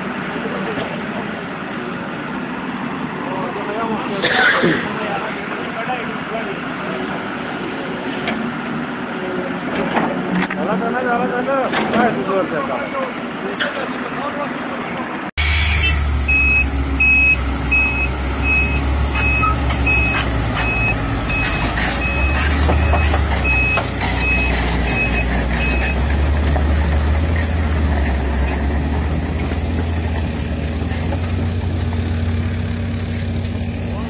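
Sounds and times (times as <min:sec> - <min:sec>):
heavy machine engine rumble: 0:00.0 - 0:34.0
reversing alarm beeping: 0:15.8 - 0:26.0.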